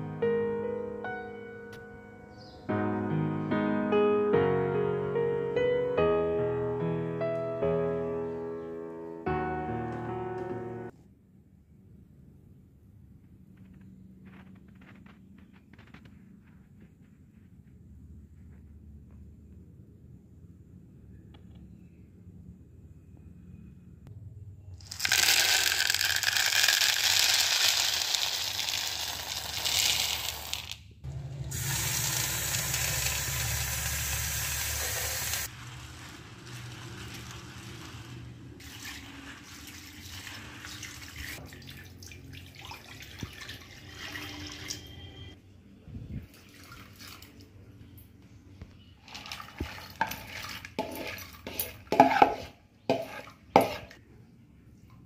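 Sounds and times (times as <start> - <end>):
tap water running into a bowl: 31.5 - 35.5, 38.6 - 44.8, 49.1 - 51.3
spoon scraping beans from bowl: 50.0 - 54.0.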